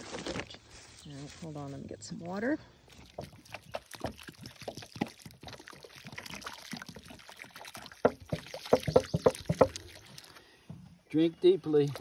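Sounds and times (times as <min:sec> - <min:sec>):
water pouring onto soil: 0:02.9 - 0:10.5, 0:11.6 - 0:12.0
water glugging from a jug: 0:02.9 - 0:10.8, 0:11.7 - 0:12.0.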